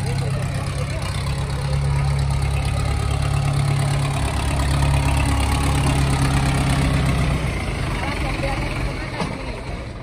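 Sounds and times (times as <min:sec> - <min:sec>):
diesel tractor engine running: 0:00.0 - 0:10.0.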